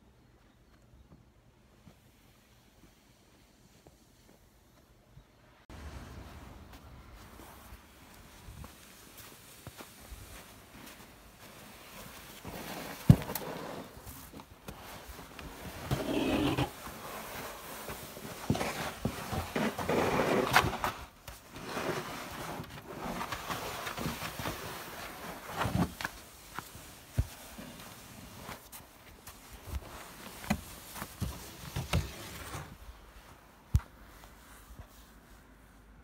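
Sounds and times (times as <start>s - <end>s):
crunching snow: 5.8s - 35.8s
snow shovel scraping: 11.7s - 14.2s, 14.8s - 26.8s.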